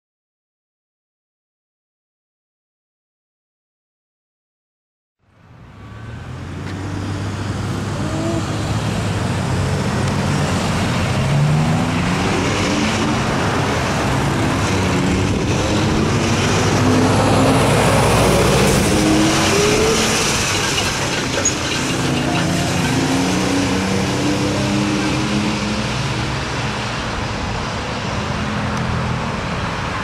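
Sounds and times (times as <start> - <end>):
bus passing: 5.2 - 30.0
heavy road traffic: 5.2 - 30.0
diesel truck engine pulling away: 5.5 - 27.6.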